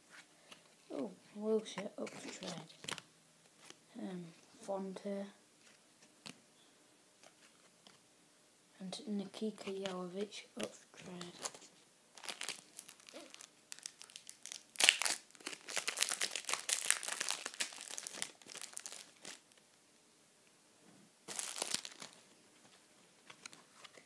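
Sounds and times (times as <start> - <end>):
foil packet tearing open: 12.2 - 19.4, 21.3 - 22.2
foil wrapper crinkling: 12.2 - 19.6, 21.3 - 22.2.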